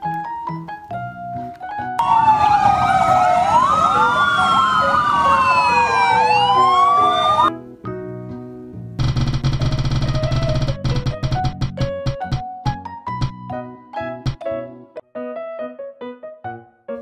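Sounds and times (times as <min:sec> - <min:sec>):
fire engine sirens wailing: 0:02.0 - 0:07.5.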